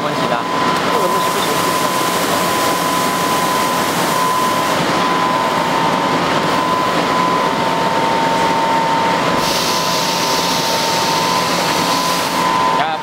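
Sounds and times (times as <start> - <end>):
laser cutter whirring and whining: 0.0 - 13.0
hiss: 9.4 - 12.4.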